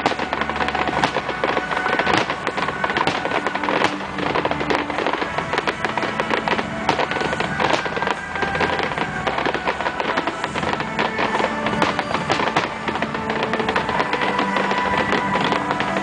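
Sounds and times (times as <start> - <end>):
fireworks crackling and popping: 0.0 - 16.0
music playing: 0.0 - 16.0.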